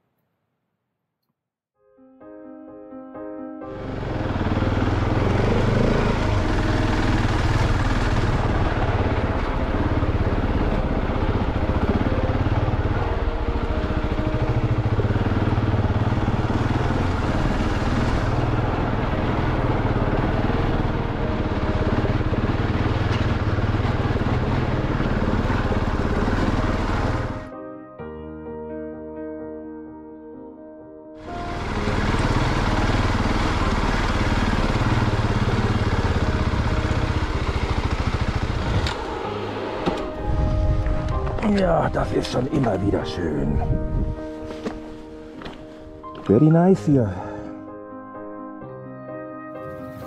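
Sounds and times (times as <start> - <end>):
piano music: 1.8 - 50.0
motorcycle engine running: 3.7 - 27.5, 31.2 - 45.6
wind rushing: 39.2 - 41.3, 43.5 - 44.3.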